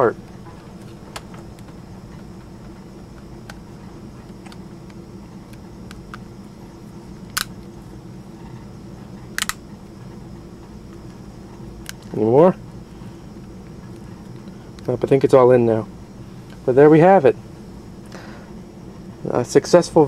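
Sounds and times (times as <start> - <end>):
steady low hum: 0.0 - 20.0
plastic case snapping shut clicks: 9.4 - 9.6.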